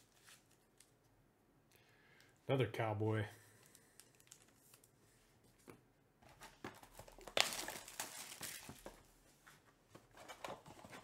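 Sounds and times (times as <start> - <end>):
plastic wrapping crinkling and tearing: 3.6 - 4.9, 7.1 - 9.0.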